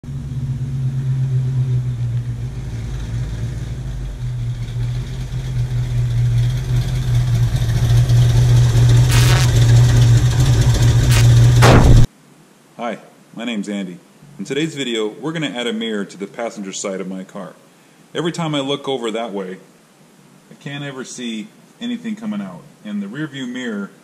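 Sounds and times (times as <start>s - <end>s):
short rushing noise: 9.1s - 9.6s, 11.1s - 12.1s.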